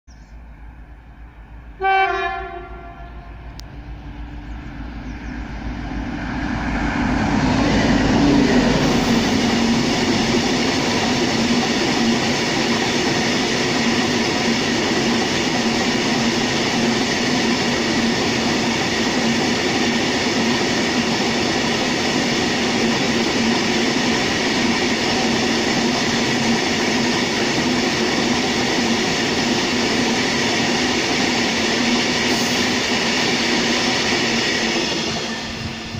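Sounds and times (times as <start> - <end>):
locomotive horn blast: 1.8 - 3.6
train wheels rumbling and clattering: 3.5 - 35.9.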